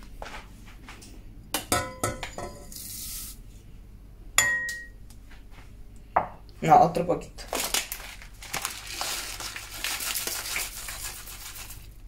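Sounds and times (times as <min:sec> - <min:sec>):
ceramic cup clinking on pot: 0:01.7 - 0:02.7, 0:04.4 - 0:04.9.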